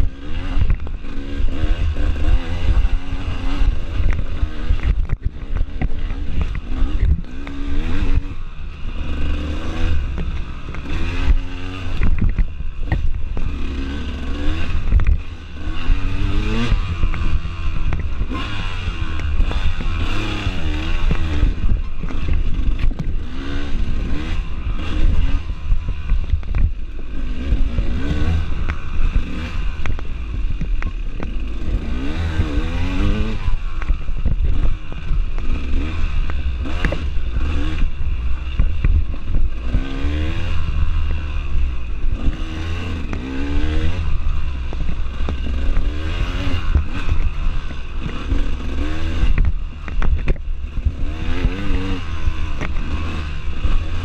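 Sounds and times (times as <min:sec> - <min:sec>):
bike knocks and rattles: 0:00.0 - 0:54.0
dirt bike engine revving: 0:00.0 - 0:54.0
wind rumble on microphone: 0:00.0 - 0:54.0.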